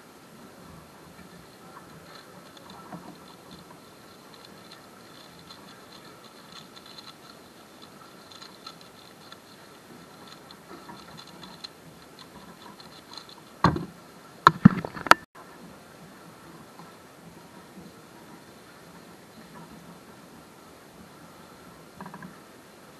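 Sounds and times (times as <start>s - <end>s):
speedcube clicking and clattering: 2.0s - 13.8s.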